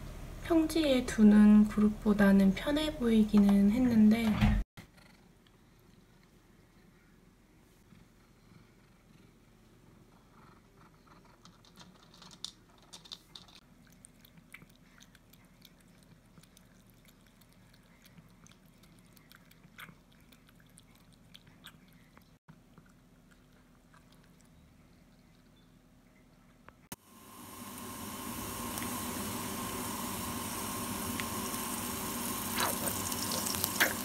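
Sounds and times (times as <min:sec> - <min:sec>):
cat lapping water: 0:13.6 - 0:24.6.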